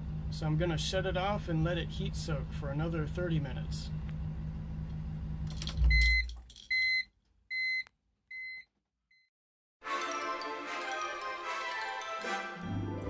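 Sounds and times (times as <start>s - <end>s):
short electronic beeps: 5.9s - 8.7s
music: 9.8s - 13.0s.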